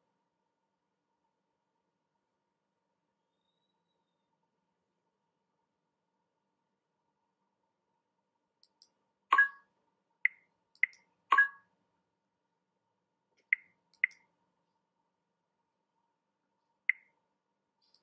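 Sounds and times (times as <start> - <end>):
electronic interface blips and clicks: 9.3 - 9.6, 10.3 - 11.6
two-tone blips: 9.3 - 9.6, 10.3 - 11.6.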